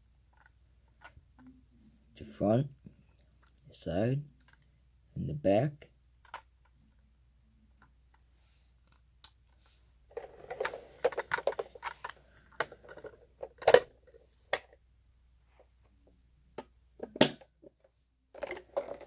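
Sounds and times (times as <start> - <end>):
plastic toy clicks and clatter: 10.2 - 13.9.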